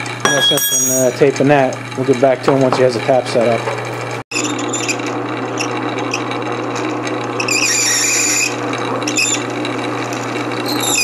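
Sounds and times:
drill bit squealing: 0.3s - 1.2s, 4.3s - 11.0s
lathe motor humming: 1.3s - 11.0s
drill bit scraping metal: 4.3s - 11.0s.

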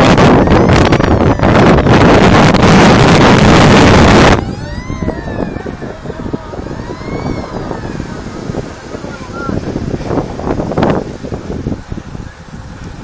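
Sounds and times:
rising and falling wailing tones: 0.0s - 9.5s
road and wind noise: 0.0s - 13.0s
wind buffeting microphone: 0.0s - 13.0s.

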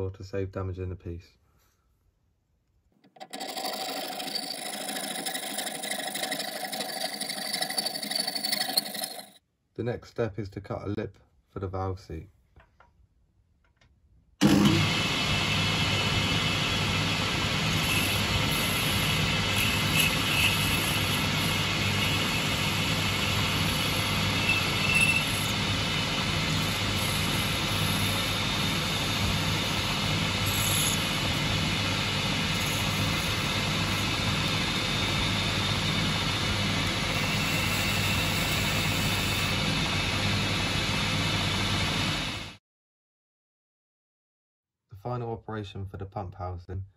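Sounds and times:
lathe motor hum: 3.2s - 9.4s, 14.4s - 42.5s
high-pitched cutting squeaks: 23.6s - 25.6s.

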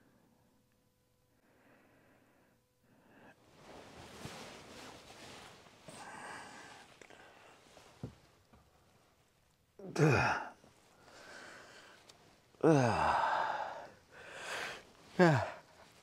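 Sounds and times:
man sighing: 9.8s - 11.5s, 12.6s - 15.9s.

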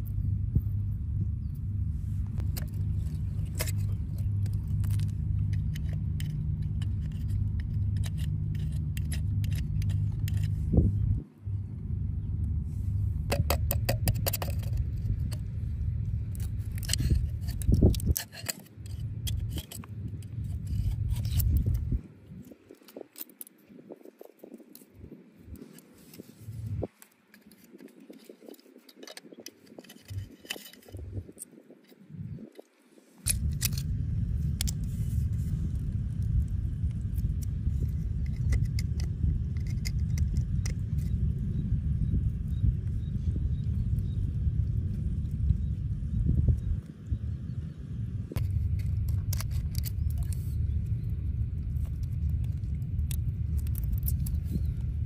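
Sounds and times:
low rumble: 0.0s - 22.7s, 24.7s - 26.9s, 29.8s - 31.4s, 33.2s - 55.0s
metal pick scraping oyster shells: 2.4s - 10.7s, 13.3s - 15.5s, 16.3s - 21.8s, 27.0s - 32.1s, 33.3s - 35.4s, 36.9s - 41.3s, 48.4s - 50.8s, 51.8s - 54.8s.

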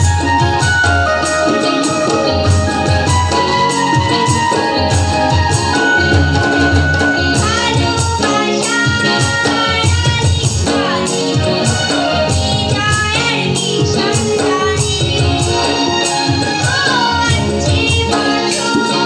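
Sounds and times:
harmonium tones: 0.0s - 19.0s
keyboard tones: 0.0s - 19.0s
tabla drumming: 0.0s - 19.0s
woman singing: 5.4s - 19.0s.

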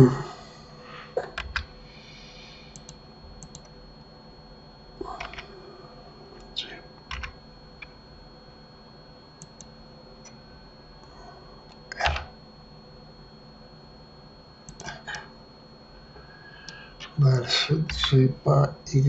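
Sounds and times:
keyboard keystrokes: 7.1s - 7.4s.

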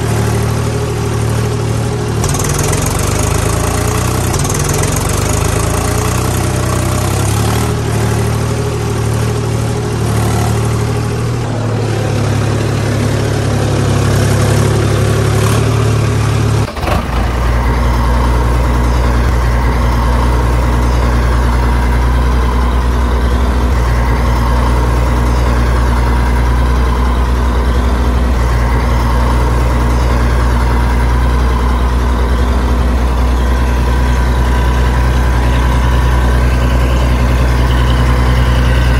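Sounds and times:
deep engine droning: 0.0s - 38.9s
tractor engine running: 0.0s - 38.9s.

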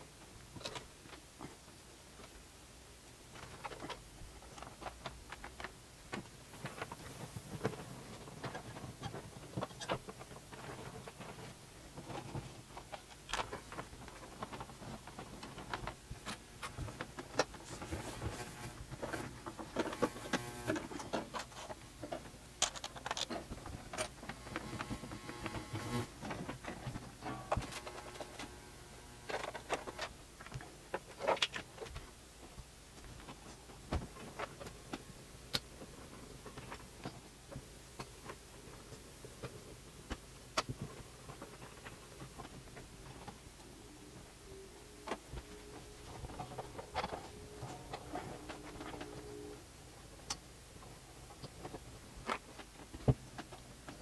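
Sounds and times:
cables rustling: 3.3s - 35.1s, 35.8s - 54.0s
cables sliding and rasping: 17.4s - 21.8s, 23.9s - 30.1s
plastic plugs clicking and knocking: 19.7s - 28.6s.

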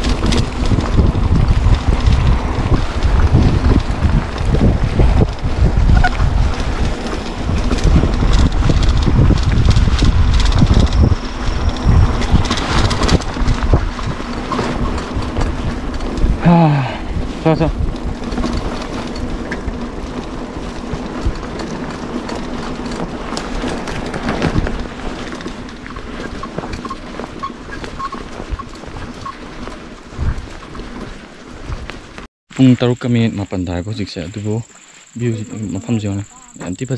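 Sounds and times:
bike rattling over bumpy ground: 0.0s - 36.9s
wind rumbling on microphone: 0.0s - 36.9s.

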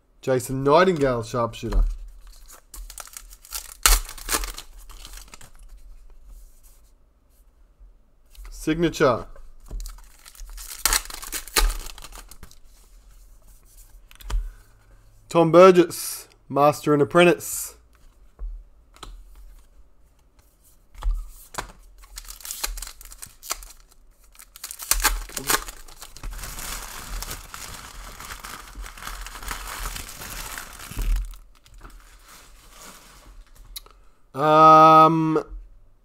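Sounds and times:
wrapper rustling and crinkling: 2.2s - 5.8s, 9.7s - 12.8s, 21.9s - 33.7s.

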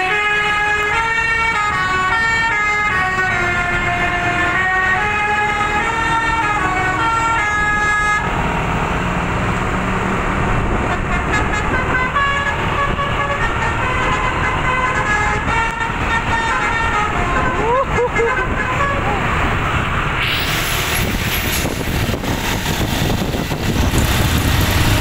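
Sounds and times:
multi-tone musical bus horn: 0.0s - 8.4s, 10.8s - 19.6s
road traffic noise: 0.0s - 25.0s.

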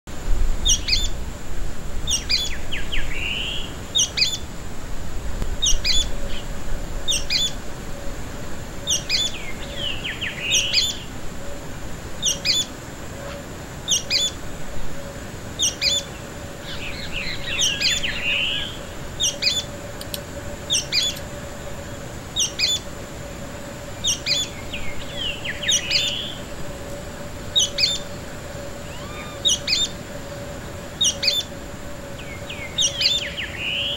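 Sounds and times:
bird twittering: 0.6s - 1.2s, 2.1s - 4.4s, 7.1s - 7.6s, 8.8s - 11.1s, 13.9s - 14.4s, 15.6s - 19.7s, 20.7s - 21.2s, 22.4s - 22.9s, 24.0s - 26.5s, 27.5s - 30.0s, 31.0s - 31.5s, 32.2s - 33.9s.

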